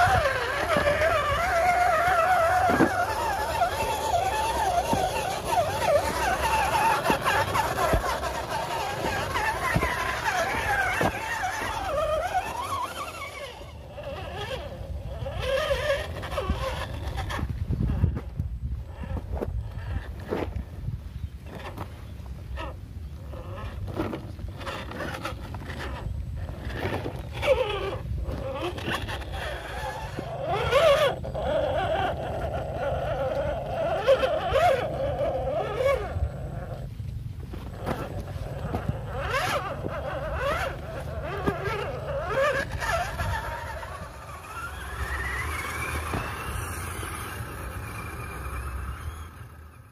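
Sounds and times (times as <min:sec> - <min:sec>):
tyres clacking on rocks: 0:00.0 - 0:14.5
electric motor whining: 0:00.0 - 0:20.6, 0:21.4 - 0:49.9.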